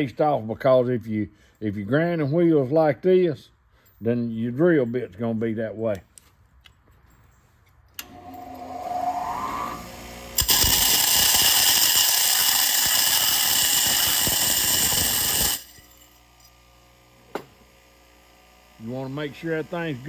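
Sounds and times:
bench grinder motor humming: 8.0s - 15.7s
harsh grinding hiss: 10.4s - 15.8s.

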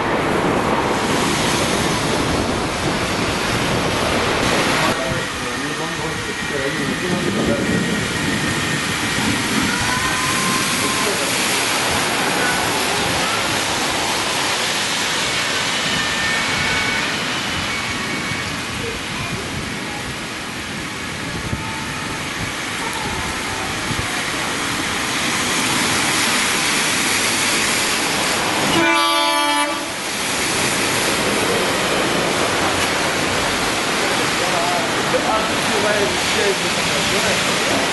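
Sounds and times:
rain: 0.0s - 37.9s
traffic noise: 0.0s - 37.9s
tyres hissing on wet road: 0.0s - 37.9s
vehicle horn: 28.7s - 30.0s.

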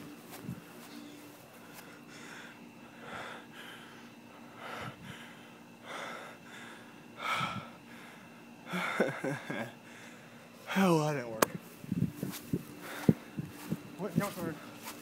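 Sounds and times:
person gasping breaths: 1.6s - 9.0s, 9.8s - 10.4s, 12.8s - 13.4s.

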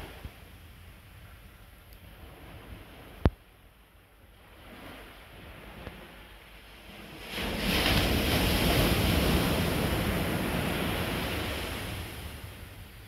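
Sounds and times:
ocean wave breaking on beach: 4.4s - 13.0s.

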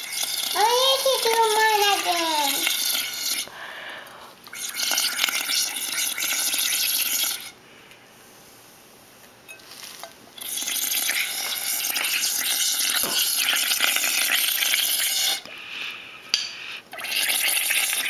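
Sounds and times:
bubbling through a straw: 0.0s - 3.5s, 4.5s - 7.6s, 10.4s - 15.5s, 16.9s - 18.0s.

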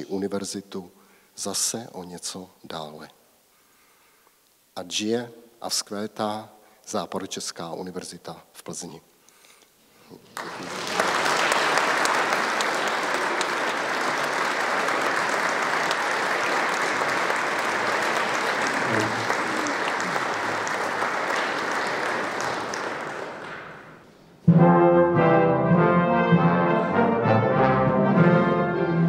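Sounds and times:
audience applauding: 10.2s - 24.1s
brass music with sustained chords: 24.4s - 29.0s.

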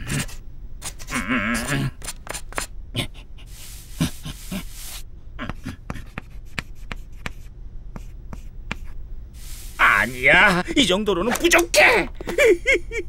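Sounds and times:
chalk scratching on wall: 3.5s - 5.0s, 6.0s - 9.8s.

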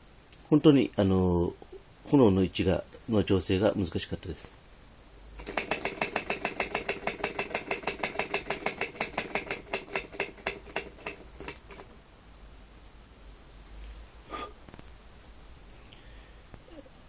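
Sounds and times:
model engine clattering: 5.4s - 11.9s.

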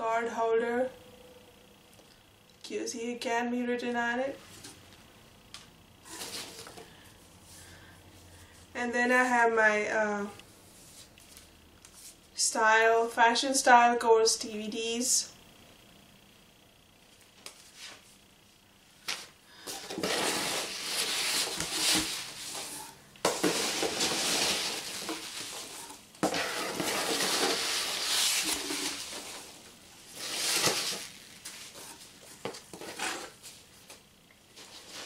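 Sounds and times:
rustling of foam packing peanuts: 19.6s - 32.0s.

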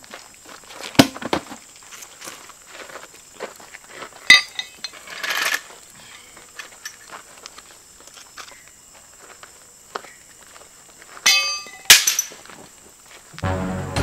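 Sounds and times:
gravel crunch: 0.0s - 13.5s
metallic tool clink: 4.3s - 5.6s, 11.3s - 12.4s.

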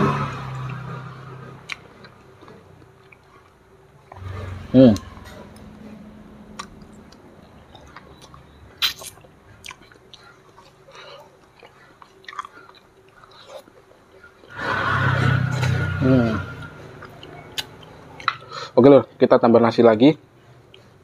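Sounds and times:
person chewing: 0.3s - 15.8s, 16.6s - 18.7s.

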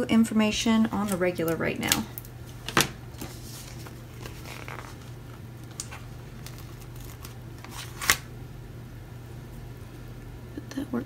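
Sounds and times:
faint steady hum: 0.0s - 11.0s
paper and sticker sheets rustling: 0.8s - 8.2s
sharp paper crinkle: 1.0s - 8.3s.

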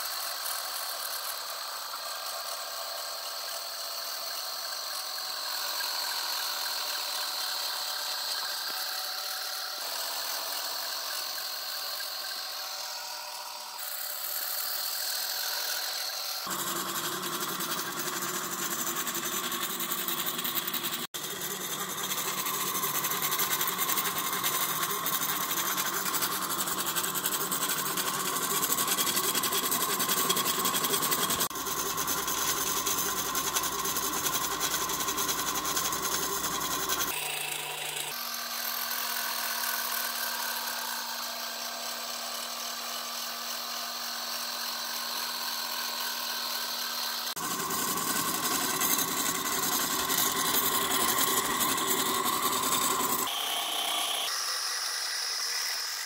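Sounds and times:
stepper motors whining and buzzing: 0.3s - 56.0s.

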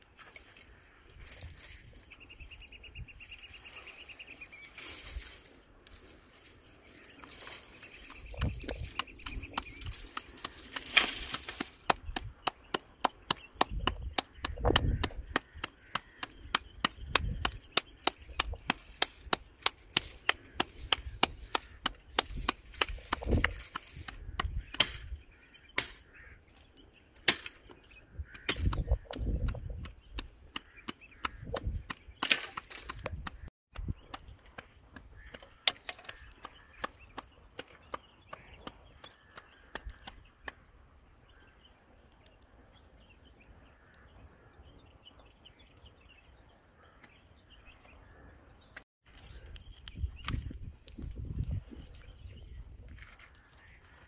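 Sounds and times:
rapid sharp cracks and snaps: 4.8s - 26.6s, 27.2s - 40.6s.

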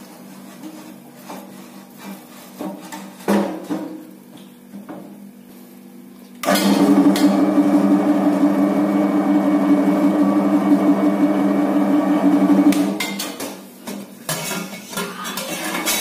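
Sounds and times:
mixer electric motor humming: 6.4s - 13.0s.

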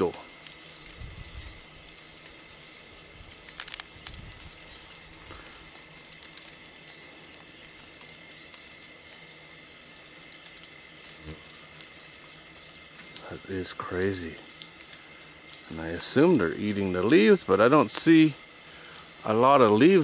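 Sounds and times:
beetles swarming buzz: 0.0s - 20.0s
faint clicks: 12.9s - 16.2s, 18.8s - 19.2s.

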